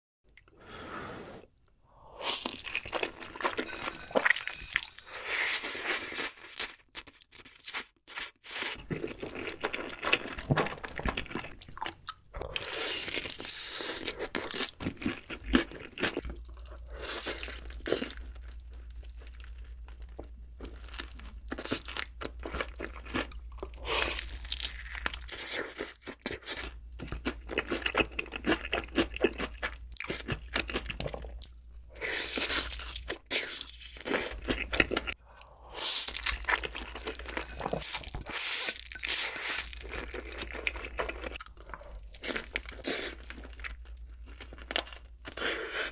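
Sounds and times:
crunching fried chicken: 0:13.0 - 0:31.4, 0:36.1 - 0:45.9
chewing: 0:32.4 - 0:45.9.

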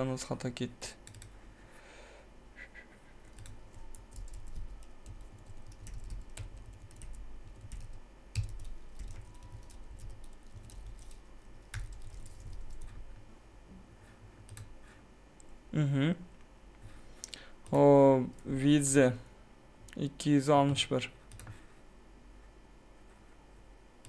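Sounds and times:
typing on keyboard: 0:01.0 - 0:01.4, 0:03.3 - 0:13.0, 0:14.5 - 0:14.7, 0:21.3 - 0:21.6.

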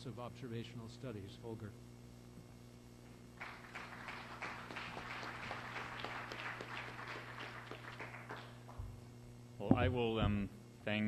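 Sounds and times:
low electrical hum: 0:00.0 - 0:11.0
audience applauding: 0:03.4 - 0:08.8.

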